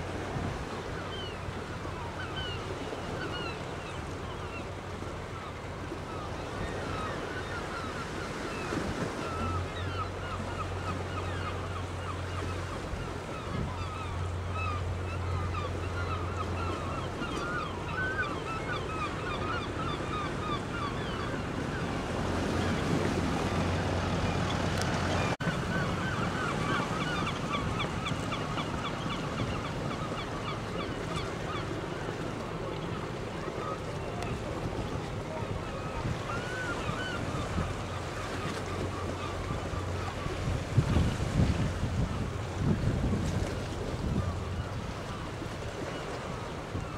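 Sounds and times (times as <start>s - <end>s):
boat engine humming: 0.0s - 46.9s
water noise: 0.0s - 46.9s
wind: 0.0s - 46.9s
gulls calling: 0.1s - 46.9s.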